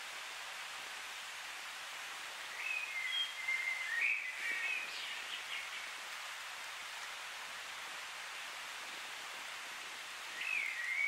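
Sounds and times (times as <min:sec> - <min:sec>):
steady hiss: 0:00.0 - 0:11.0
bird singing whistled notes: 0:02.5 - 0:05.8, 0:10.4 - 0:11.0.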